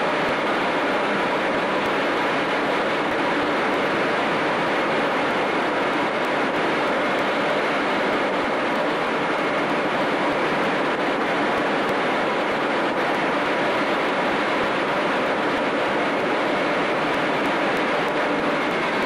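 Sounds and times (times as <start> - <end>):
faint constant whine: 0.0 - 19.0
jet engines in flight: 0.0 - 19.0.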